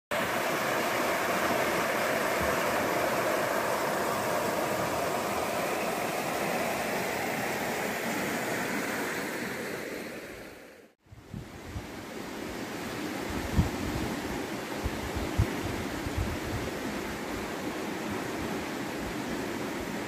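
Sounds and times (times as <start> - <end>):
stream rushing over stones: 0.1 - 10.6.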